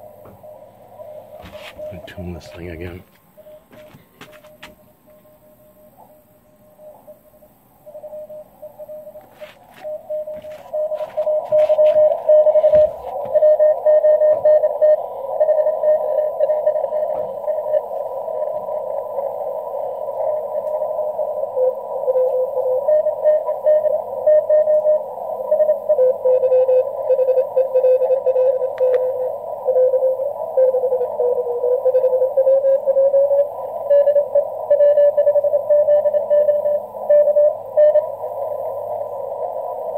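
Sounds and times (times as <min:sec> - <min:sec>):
lower-pitched morse signal: 0:00.0 - 0:39.9
radio band noise hiss: 0:00.0 - 0:39.9
morse code beeping: 0:01.4 - 0:05.5, 0:08.0 - 0:16.8, 0:26.3 - 0:38.0.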